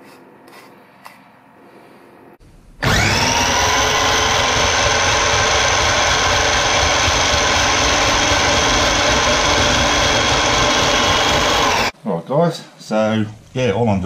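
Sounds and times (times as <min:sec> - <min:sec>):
blade grinding dry noodles: 0:02.8 - 0:11.9
food processor motor whine: 0:02.8 - 0:11.9.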